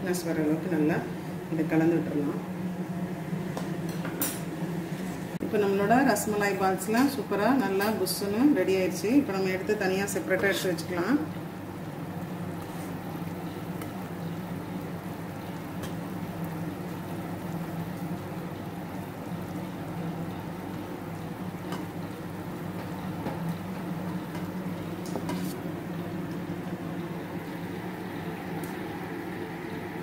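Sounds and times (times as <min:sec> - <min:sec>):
syrup boiling in a pot: 0:09.2 - 0:30.0.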